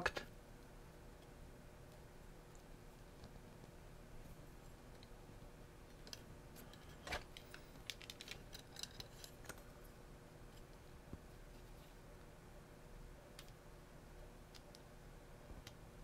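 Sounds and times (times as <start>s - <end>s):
plastic parts clicking: 7.0s - 9.6s.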